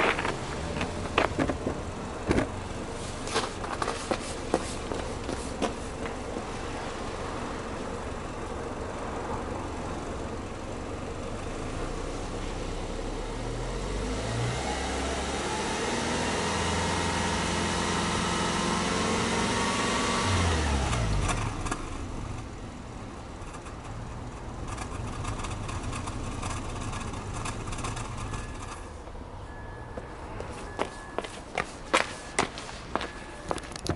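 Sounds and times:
car engine idling and revving: 0.0s - 33.9s.

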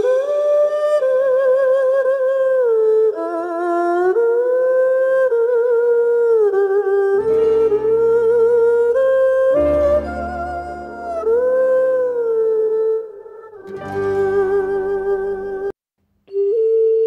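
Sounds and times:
low accompanying chords: 7.2s - 12.2s, 13.6s - 15.7s
slow melody with vibrato: 7.2s - 15.7s.

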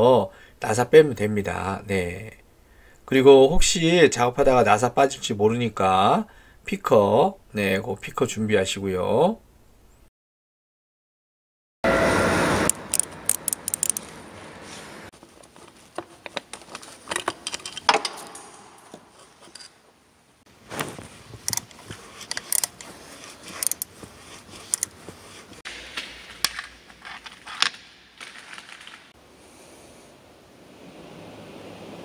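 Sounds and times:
socket wrench clicking: 12.7s - 14.1s, 21.4s - 23.9s, 24.6s - 25.0s.

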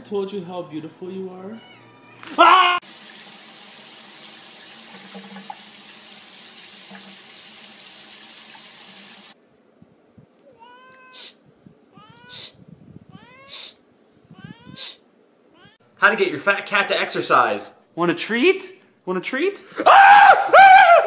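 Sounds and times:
cat meowing: 1.6s - 2.8s, 10.4s - 15.8s
cat calls rising in pitch: 10.5s - 15.8s
short hissy bursts: 11.1s - 11.4s, 12.3s - 12.6s, 13.5s - 13.8s, 14.8s - 15.0s.

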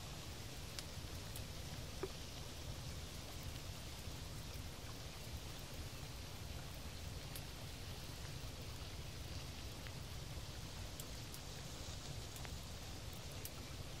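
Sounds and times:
water hiss: 0.0s - 14.0s
faint light ticks: 0.7s - 3.7s, 7.2s - 8.4s, 9.2s - 10.0s, 10.9s - 13.8s.

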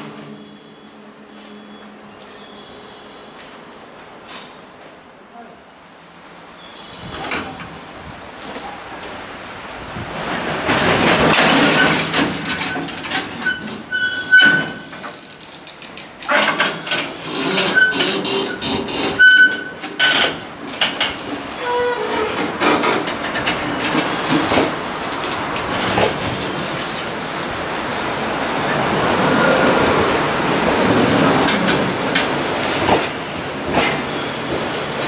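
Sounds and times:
train couplers clanking and banging: 0.0s - 0.7s, 7.0s - 9.2s, 10.0s - 35.0s
short high squeals: 13.4s - 14.9s, 17.2s - 19.8s.

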